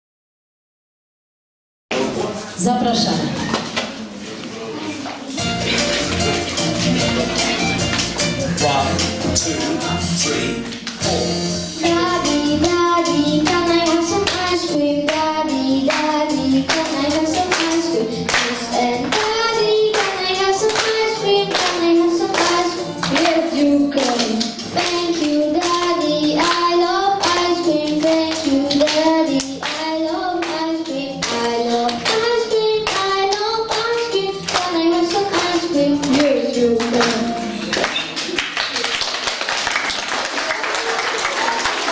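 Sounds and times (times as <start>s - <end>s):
clapped beat: 5.6s - 8.4s, 13.4s - 14.5s, 15.1s - 15.3s, 15.9s - 41.9s
children singing into microphones: 9.4s - 37.9s.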